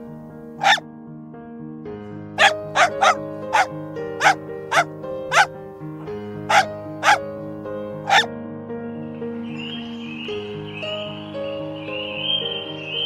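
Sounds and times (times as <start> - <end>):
puppy yapping: 0.6 - 0.8, 2.4 - 5.5, 6.5 - 7.2, 8.0 - 8.3.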